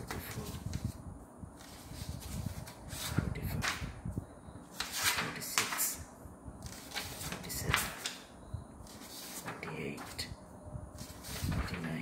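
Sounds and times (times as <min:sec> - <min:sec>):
paper sheets rustling: 0:00.0 - 0:01.0, 0:01.6 - 0:04.0, 0:04.7 - 0:06.0, 0:06.6 - 0:10.3, 0:10.9 - 0:12.0.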